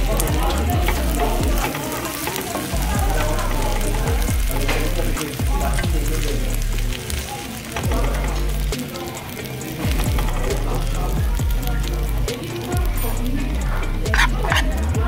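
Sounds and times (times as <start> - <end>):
background music: 0.0 - 15.0
rice sizzling in a pan: 0.0 - 15.0
utensils scraping a pan: 0.1 - 5.4, 14.0 - 15.0.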